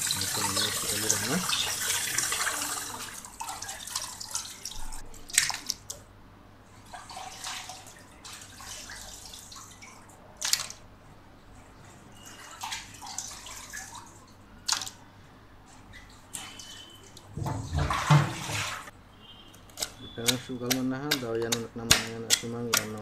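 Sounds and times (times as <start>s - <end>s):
sharp wet splashes: 0.0s - 6.0s, 6.9s - 10.8s, 12.2s - 15.0s, 16.3s - 18.9s
water dripping: 0.0s - 6.1s, 6.8s - 10.8s, 11.6s - 15.1s, 15.9s - 18.7s.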